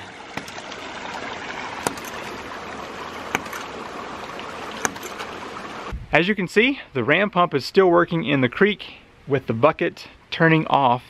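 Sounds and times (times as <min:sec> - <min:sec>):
creek rushing: 0:00.0 - 0:05.9.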